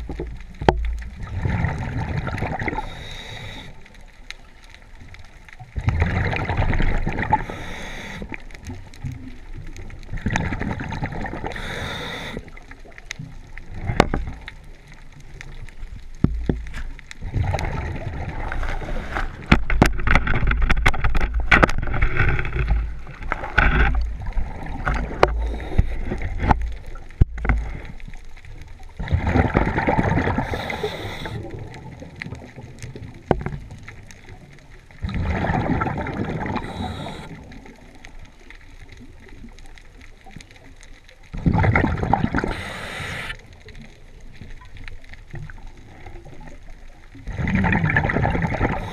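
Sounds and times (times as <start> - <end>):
exhaled bubbles: 0.0 - 3.9, 5.6 - 15.9, 17.2 - 39.6, 40.2 - 44.8, 45.4 - 48.9
regulator inhale hiss: 2.7 - 3.9, 7.3 - 8.4, 11.5 - 12.6, 25.3 - 26.2, 30.4 - 31.5, 36.6 - 37.4, 42.4 - 43.5.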